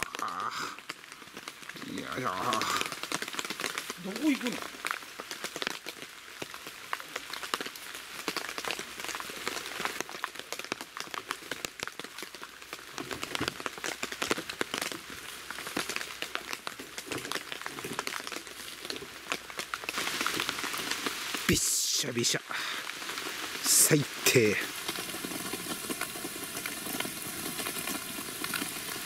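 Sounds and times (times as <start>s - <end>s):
rain drops hitting: 0.0s - 29.0s.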